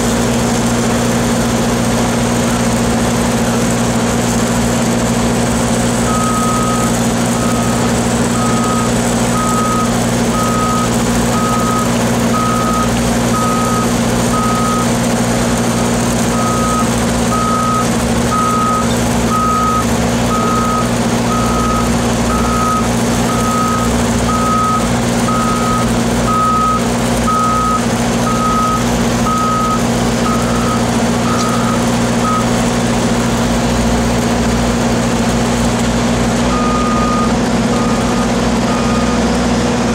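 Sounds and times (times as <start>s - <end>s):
engines droning: 0.0s - 39.9s
reversing alarm beeping: 6.1s - 15.7s, 16.3s - 32.6s, 36.5s - 39.3s.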